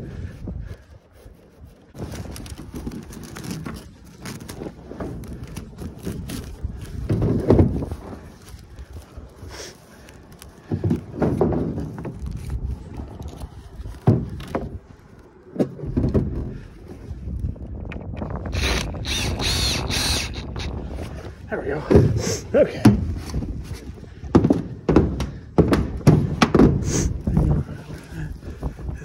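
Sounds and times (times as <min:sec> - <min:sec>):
tarp rustling and scraping: 0:01.3 - 0:15.3.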